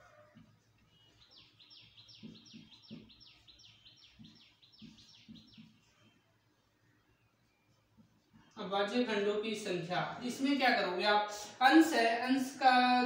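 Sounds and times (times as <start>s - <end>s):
marker tapping on whiteboard: 2.2s - 3.4s, 4.1s - 5.9s.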